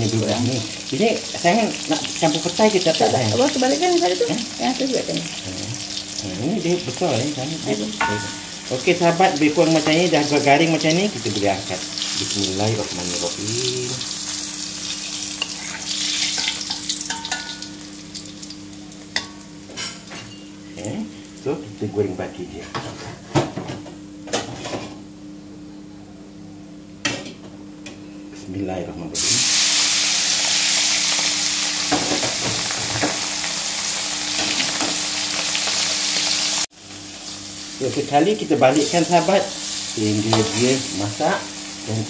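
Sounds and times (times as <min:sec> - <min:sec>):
oil sizzling in a wok: 0:00.0 - 0:20.1, 0:29.2 - 0:42.0.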